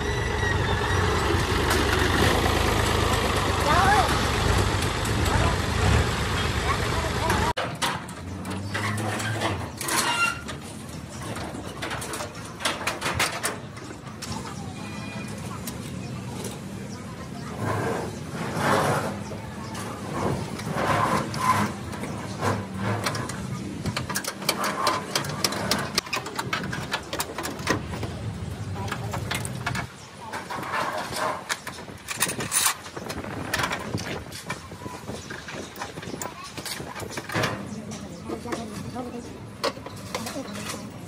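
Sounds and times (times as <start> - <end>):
engine running steadily: 0.0 - 7.6
sharp clicks and knocks: 20.5 - 38.9.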